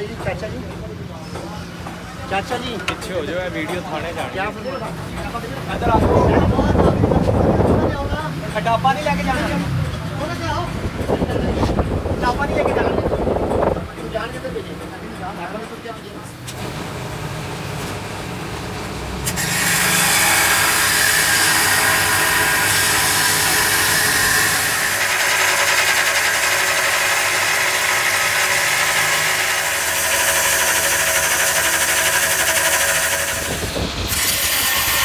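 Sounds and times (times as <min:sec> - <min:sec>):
grinder grinding metal: 0:19.2 - 0:35.0.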